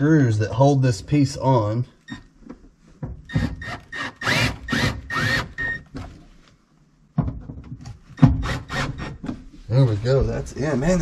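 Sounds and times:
power drill running: 0:03.3 - 0:05.8, 0:08.4 - 0:09.1.

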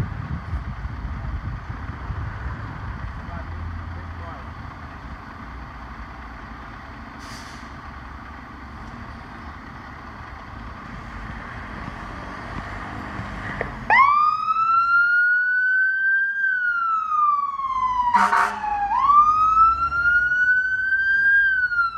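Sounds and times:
fire engine motor running: 0:00.0 - 0:21.9
siren wailing: 0:13.9 - 0:21.9.

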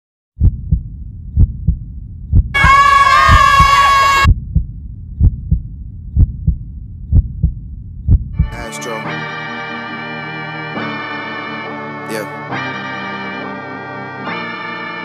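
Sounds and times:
low rumbling drone: 0:00.4 - 0:02.6, 0:04.2 - 0:08.6
heartbeat thumps: 0:00.4 - 0:08.8.

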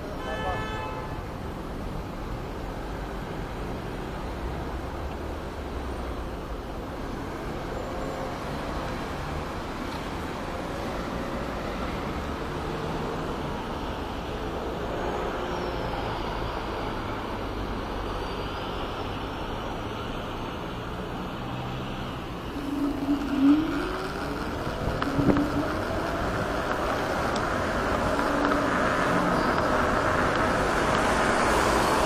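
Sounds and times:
wind and road noise: 0:00.0 - 0:32.0
whine climbing in pitch: 0:22.2 - 0:32.0.

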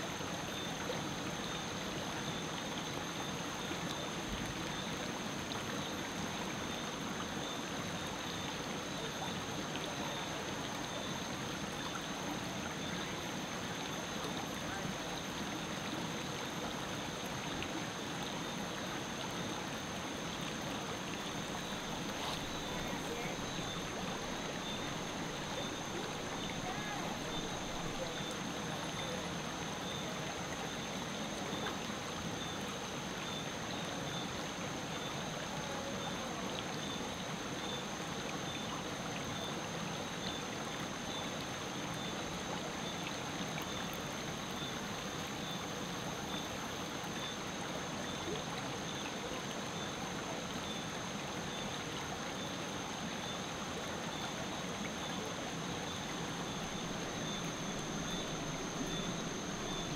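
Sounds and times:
river water running: 0:00.0 - 0:59.9.

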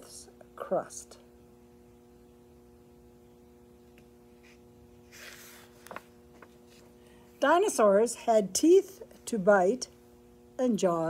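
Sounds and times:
faint steady hum: 0:00.0 - 0:11.0
book page rustling: 0:04.4 - 0:07.0.

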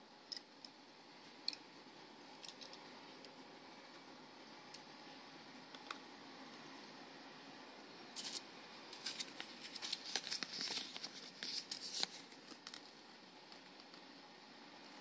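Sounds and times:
paper leaflet rustling: 0:08.2 - 0:14.0.

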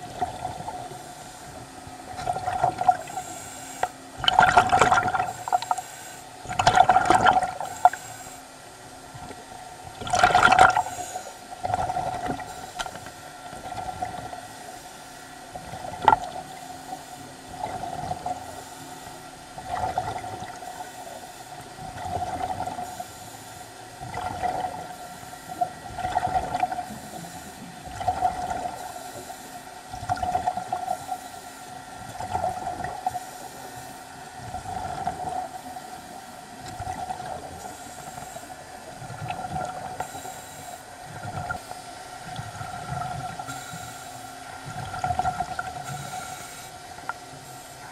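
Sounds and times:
underwater breathing apparatus bubbling: 0:02.1 - 0:08.3, 0:10.0 - 0:14.5, 0:24.0 - 0:31.4.

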